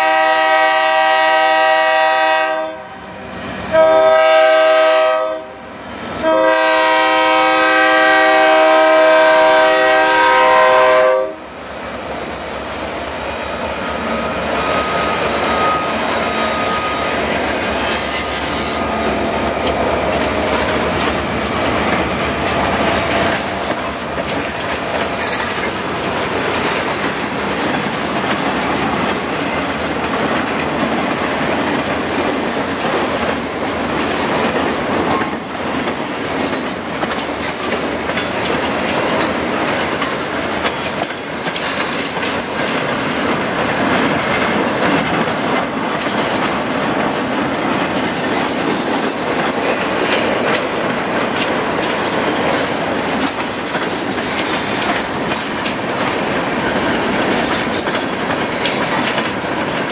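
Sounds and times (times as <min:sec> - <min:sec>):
locomotive air horn: 0:00.0 - 0:11.6
freight cars wheel-on-rail noise: 0:00.0 - 0:59.9.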